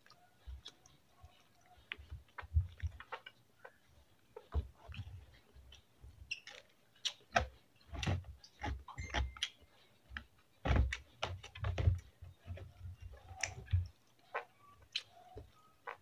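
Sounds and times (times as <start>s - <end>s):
person chewing: 0.0s - 3.8s, 13.0s - 16.0s
lip smacks: 5.7s - 7.5s, 13.3s - 16.0s.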